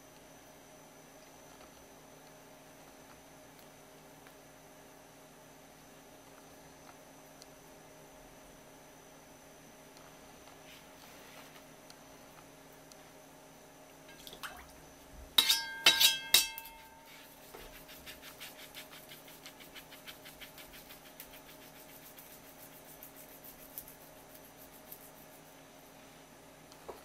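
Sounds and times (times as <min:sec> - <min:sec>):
steel knife clinking: 0:15.4 - 0:17.1
knife scraping fish skin: 0:15.4 - 0:25.4.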